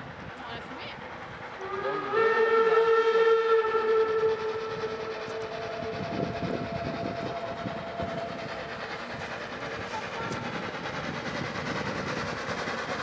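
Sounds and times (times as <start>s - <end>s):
steam locomotive rumbling: 0.0s - 13.0s
steady train whistle: 1.5s - 10.8s.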